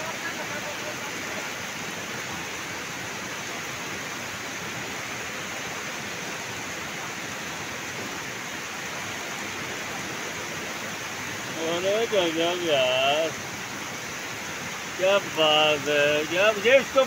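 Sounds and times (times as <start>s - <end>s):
heavy rain falling: 0.0s - 4.4s, 9.0s - 17.0s
floodwater rushing: 0.0s - 17.0s.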